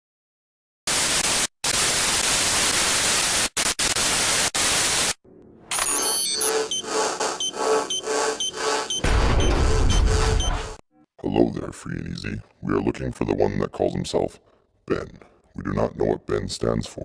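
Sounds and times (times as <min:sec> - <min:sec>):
electronic computer beeps: 0:05.8 - 0:10.8.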